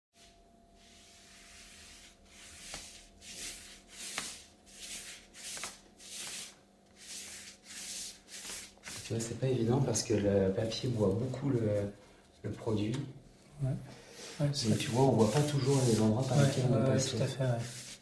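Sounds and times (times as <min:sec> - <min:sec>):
brush swishing across paper: 0:00.2 - 0:09.3, 0:14.2 - 0:18.0.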